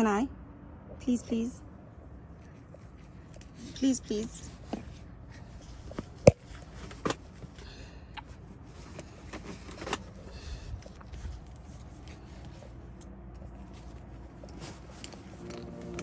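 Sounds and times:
low steady rumble: 0.0s - 16.0s
straps rustling and scraping: 2.4s - 16.0s.

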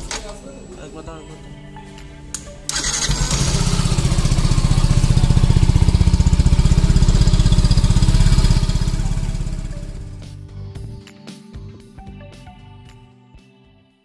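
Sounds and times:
motorcycle engine idling: 2.7s - 10.4s.

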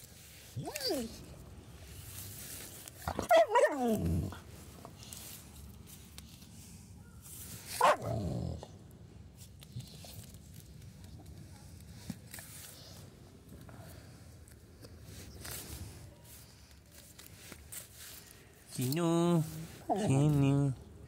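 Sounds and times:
dog vocalising: 3.1s - 4.4s, 7.8s - 8.1s.

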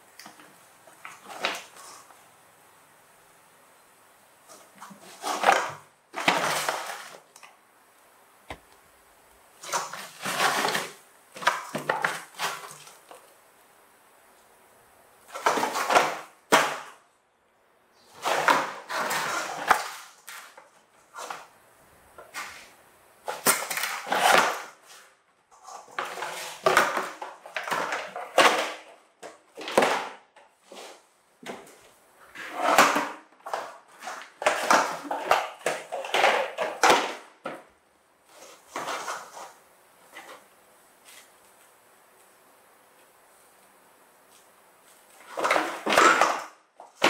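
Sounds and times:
toy truck scraping on wooden floor: 9.7s - 11.0s, 18.1s - 21.5s, 32.3s - 36.0s.

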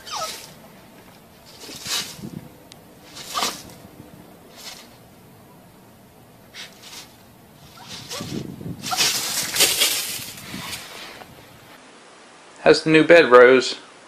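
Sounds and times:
dog's feet scattering gravel: 1.4s - 2.4s, 3.1s - 3.8s, 6.6s - 10.9s.

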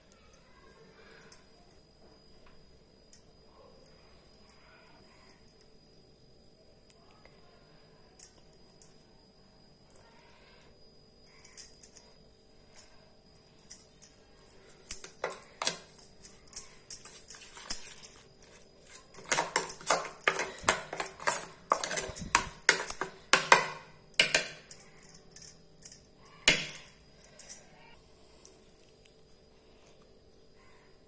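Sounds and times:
metal spoon scraping steel bowl: 18.8s - 23.6s.

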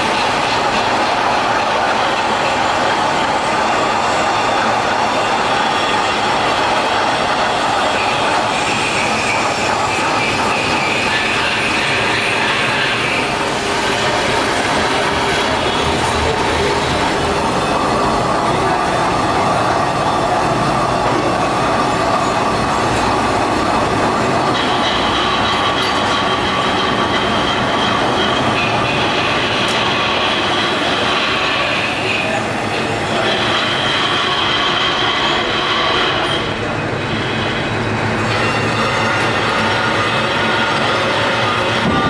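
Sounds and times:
lathe grinding steel: 0.0s - 42.0s
high-pitched tool squeal: 24.5s - 42.0s.

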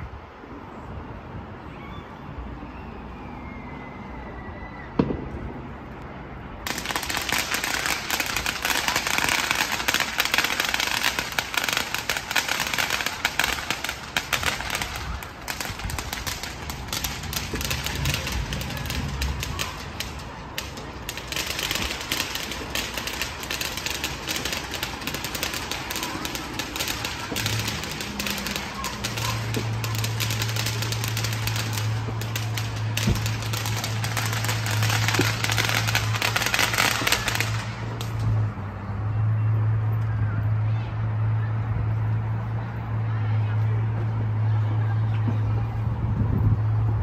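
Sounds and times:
heavy rain pattering: 6.6s - 38.4s.

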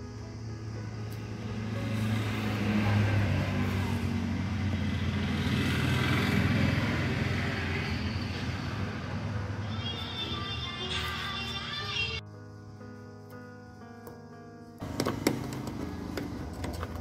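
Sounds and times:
background music: 0.0s - 5.8s, 8.3s - 17.0s
motor vehicle passing by: 0.9s - 10.4s, 14.8s - 17.0s.

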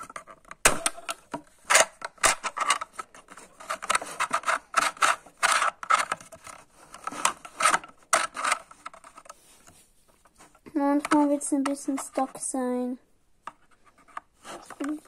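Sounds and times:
plastic toy pieces clicking: 0.0s - 9.3s.

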